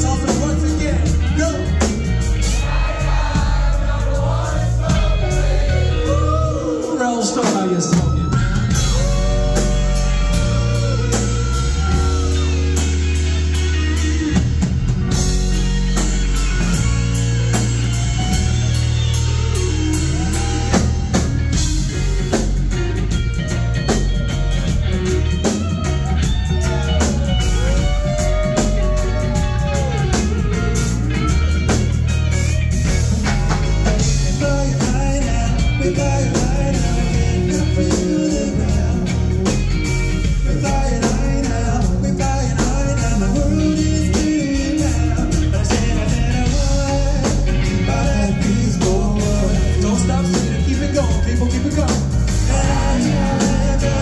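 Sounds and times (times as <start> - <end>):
bass guitar: 0.0 - 54.0
drum kit: 0.0 - 54.0
electric guitars: 0.0 - 54.0.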